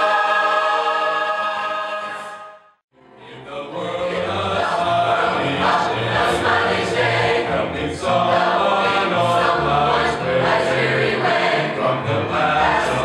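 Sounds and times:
choir singing gospel song: 0.0 - 2.6, 3.2 - 13.0.

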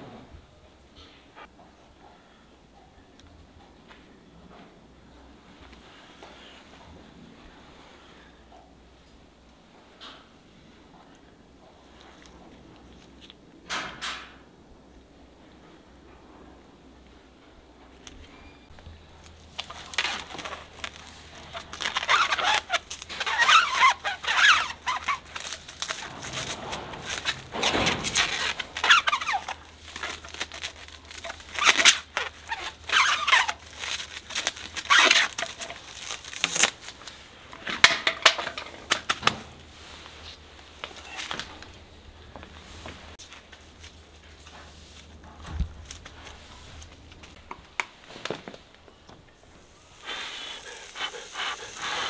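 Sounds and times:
plastic film crinkling: 18.7 - 37.7, 40.6 - 41.8, 43.2 - 47.4
tape ripping off roll: 19.2 - 39.6.

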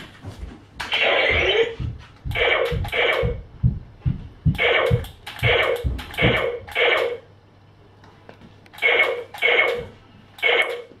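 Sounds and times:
electronic laser shot sounds: 2.3 - 3.4, 4.6 - 7.2, 8.8 - 10.9.

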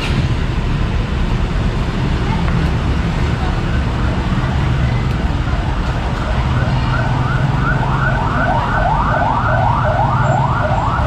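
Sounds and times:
electronic siren yelping: 6.6 - 11.0.

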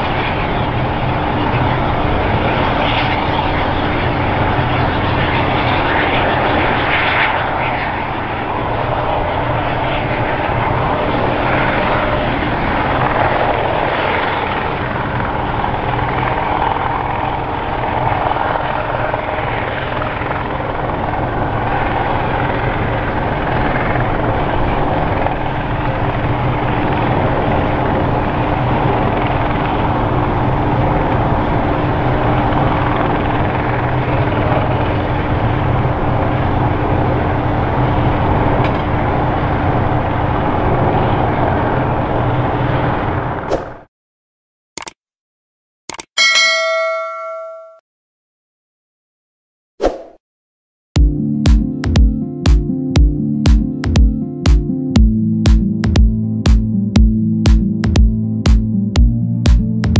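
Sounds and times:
helicopter engine and rotors droning: 0.0 - 43.5, 51.0 - 59.9.

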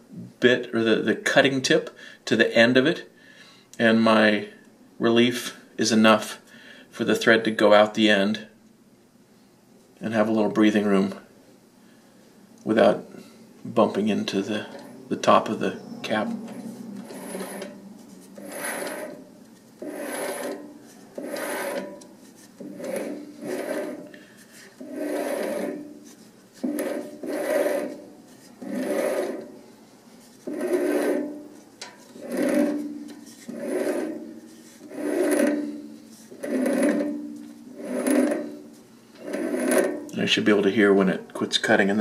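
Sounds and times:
lathe tool scraping metal: 14.3 - 29.7, 30.4 - 40.2.

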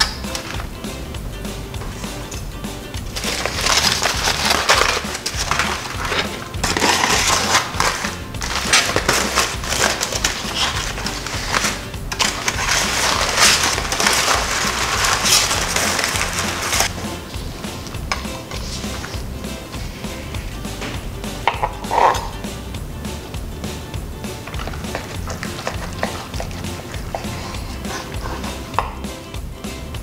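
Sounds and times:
background music: 0.0 - 30.0
aluminium foil crinkling: 3.0 - 17.2, 24.5 - 28.6.

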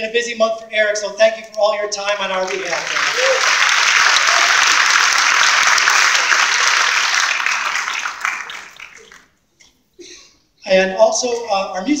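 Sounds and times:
audience applauding: 2.2 - 9.3.

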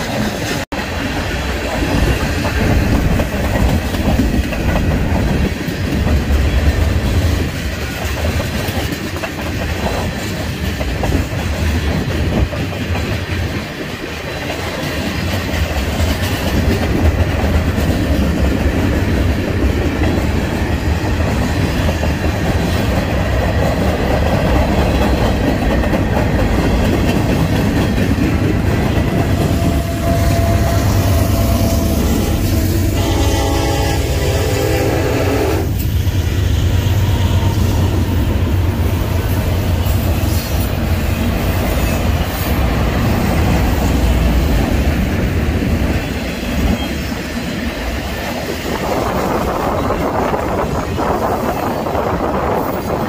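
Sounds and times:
freight train rumbling past: 0.0 - 53.0
locomotive steady tone: 25.0 - 42.7.

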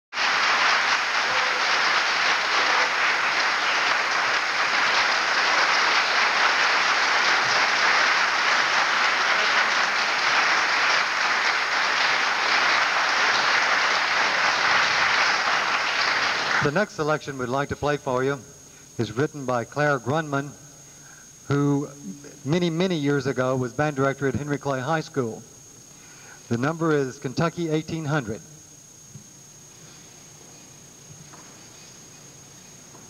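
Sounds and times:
audience applauding: 0.1 - 16.8.

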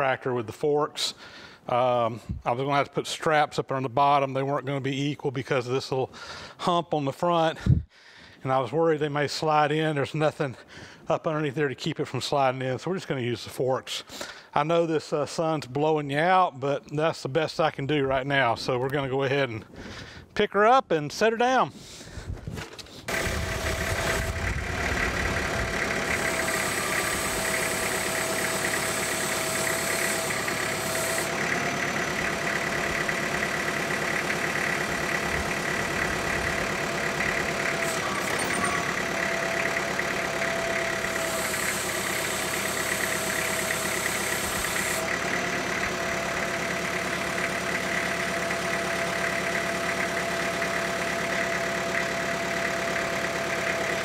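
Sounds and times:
tractor diesel engine running: 21.7 - 54.0
thin engine whine: 23.1 - 54.0.

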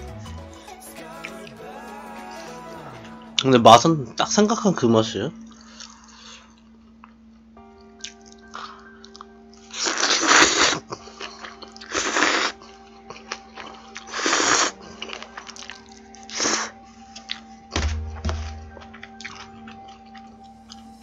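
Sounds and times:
faint background music: 0.0 - 21.0
person slurping noodles: 11.8 - 12.6, 14.0 - 14.8.

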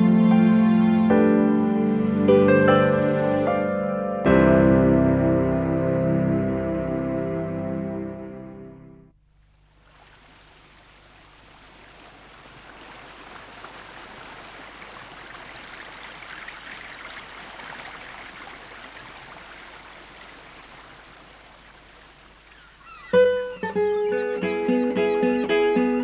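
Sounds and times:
plucked guitar: 0.0 - 9.1, 23.1 - 26.0
rushing water: 9.8 - 23.9.

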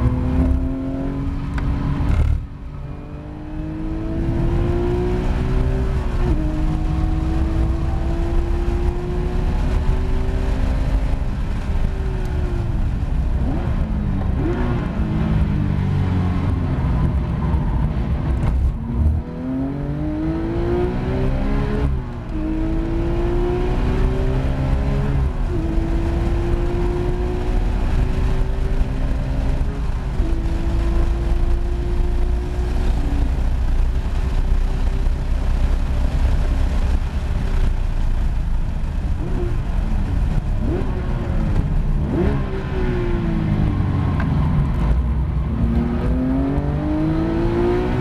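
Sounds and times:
car engine revving from inside: 0.0 - 2.4, 3.0 - 11.6, 18.9 - 33.4, 45.5 - 48.0.

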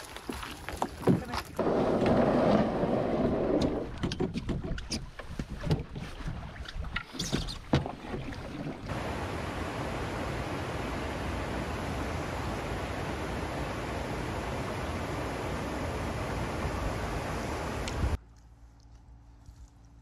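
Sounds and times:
canoe hull scraping on stones: 0.0 - 8.9
paddle splashes: 1.0 - 18.2.

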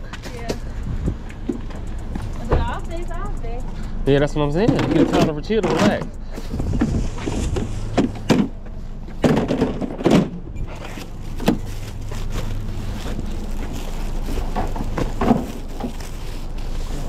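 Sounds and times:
steady low hum: 0.0 - 17.0
plastic totes knocking and clattering: 4.6 - 6.1, 6.8 - 16.2.

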